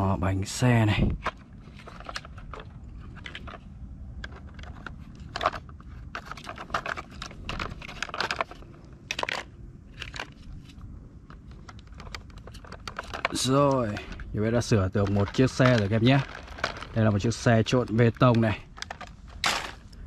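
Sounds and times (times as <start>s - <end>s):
low steady rumble: 0.0s - 20.0s
plastic toy parts clicking: 4.2s - 19.9s.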